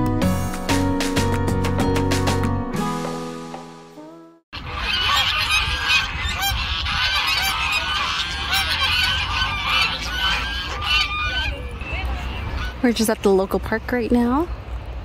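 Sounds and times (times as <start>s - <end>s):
geese honking: 4.6s - 13.1s.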